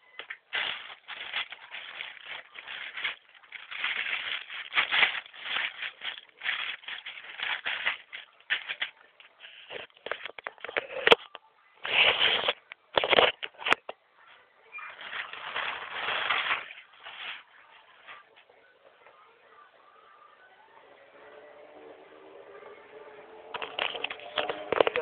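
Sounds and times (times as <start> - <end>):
plastic packaging crinkling: 0.0 - 11.3, 11.9 - 14.0, 14.7 - 18.2, 23.5 - 25.0.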